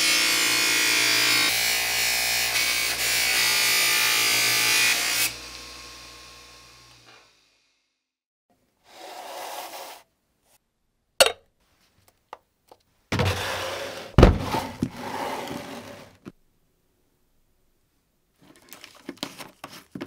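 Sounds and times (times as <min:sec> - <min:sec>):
scraping: 0:13.1 - 0:16.3.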